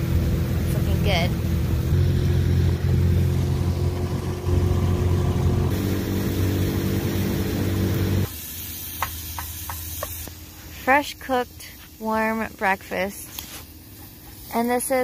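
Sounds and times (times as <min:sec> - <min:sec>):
outboard motor running: 0:00.0 - 0:08.3.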